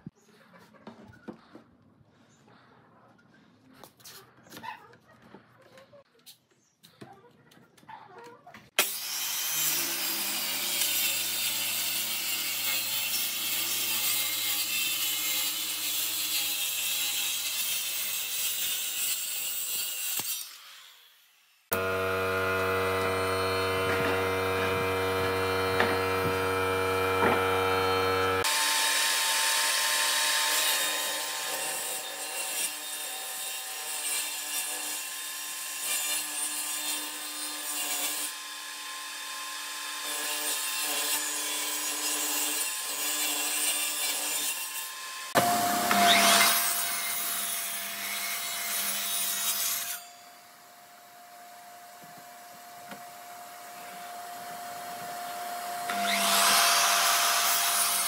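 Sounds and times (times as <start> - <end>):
handheld power tool cutting wood: 8.7 - 58.0
table saw cutting wood: 8.8 - 51.4, 52.9 - 58.0
machine whining: 21.7 - 28.7.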